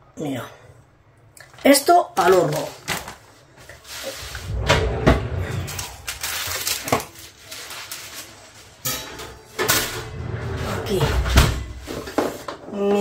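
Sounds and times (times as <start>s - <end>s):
scraping and rustling: 2.3s - 12.6s.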